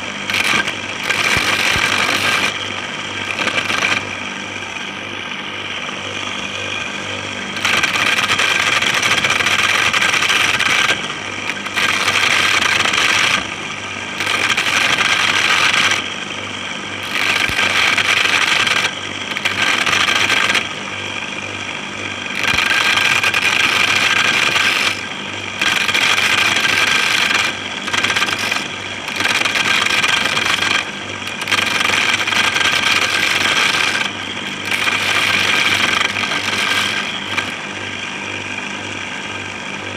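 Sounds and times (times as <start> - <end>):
electric motor whining: 0.0 - 4.3, 22.3 - 37.7.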